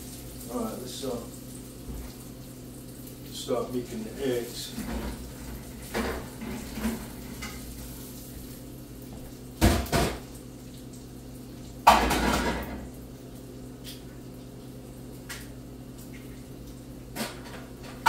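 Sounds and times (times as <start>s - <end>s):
pans and utensils clattering: 4.6s - 7.7s, 9.6s - 10.3s, 11.8s - 12.9s, 17.1s - 18.0s.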